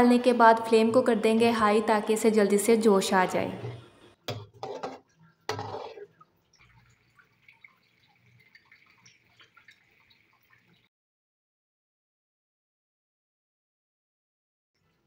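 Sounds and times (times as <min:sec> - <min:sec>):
spatula scraping metal pot: 0:03.5 - 0:06.2
gravy bubbling and crackling: 0:03.6 - 0:10.9.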